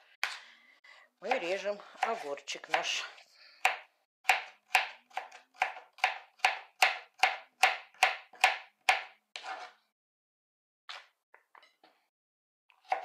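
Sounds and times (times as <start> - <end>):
knife chopping on plastic board: 3.6 - 9.7, 12.8 - 13.0.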